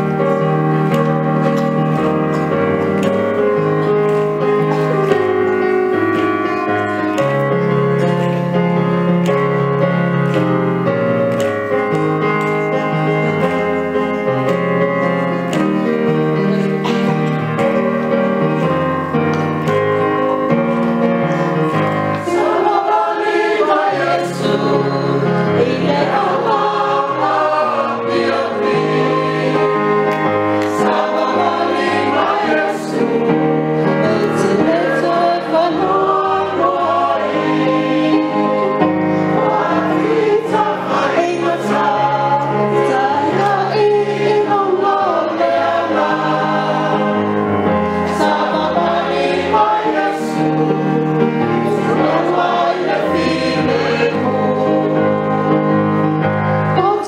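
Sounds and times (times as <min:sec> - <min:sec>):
choir singing in parts: 0:21.5 - 0:56.0.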